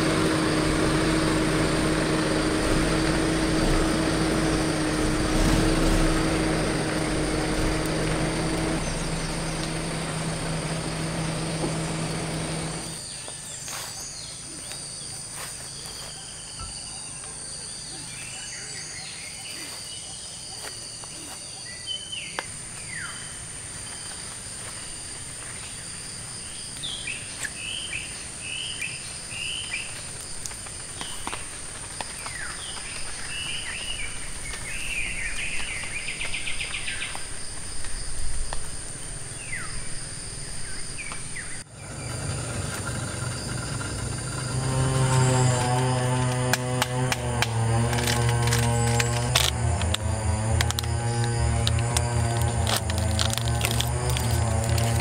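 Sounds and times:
high insect drone: 0.0s - 55.0s
birds chirping and calling: 6.6s - 23.4s.

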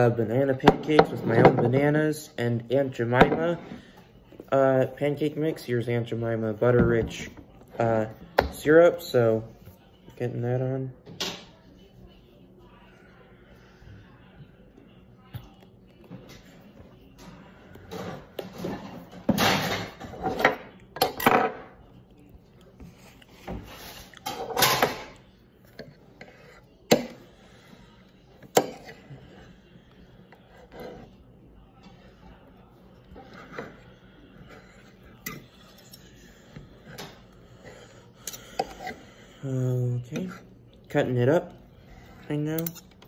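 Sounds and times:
cutlery clinking against plate: 42.5s - 43.0s.

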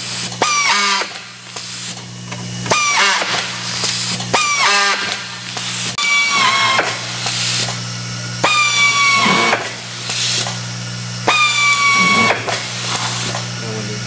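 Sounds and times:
electric screwdriver whine: 6.0s - 7.5s, 8.4s - 10.4s, 11.2s - 13.3s.

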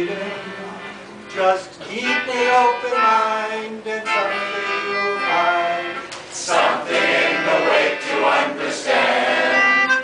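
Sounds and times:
melodica: 0.0s - 10.0s
voices singing together: 2.0s - 10.0s.

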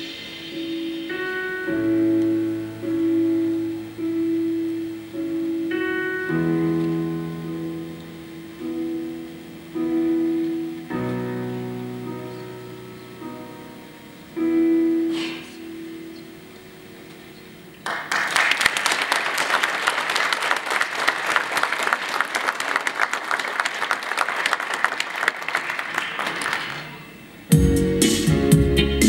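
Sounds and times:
piano chords ringing: 0.0s - 18.0s
audience applause: 17.8s - 27.1s.

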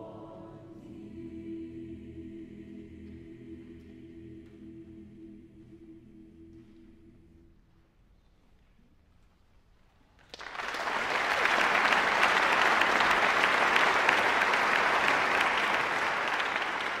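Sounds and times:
audience applauding: 10.2s - 17.0s.

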